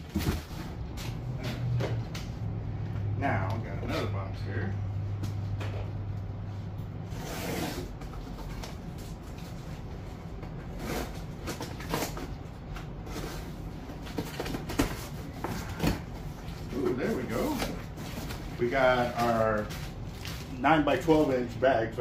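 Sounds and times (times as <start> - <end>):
cardboard box scraping and ripping: 7.1 - 8.0.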